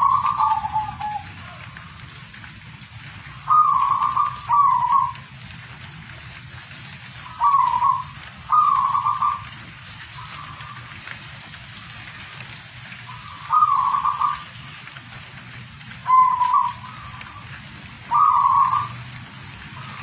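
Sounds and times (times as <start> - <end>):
dove trilled cooing: 0.0 - 2.3, 3.2 - 5.3, 6.6 - 11.2, 13.0 - 14.8, 16.0 - 19.1
background hiss: 0.0 - 20.0.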